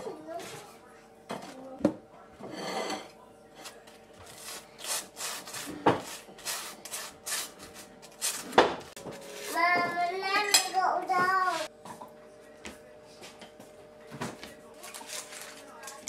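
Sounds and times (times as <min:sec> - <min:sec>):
knife scraping butter on toast: 0:04.3 - 0:08.5.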